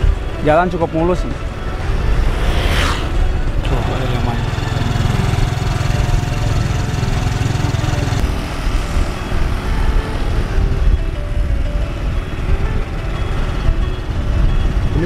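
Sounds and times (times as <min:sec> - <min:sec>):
motorcycle engine running: 0:03.2 - 0:15.0
wind rumble on microphone: 0:08.2 - 0:15.0.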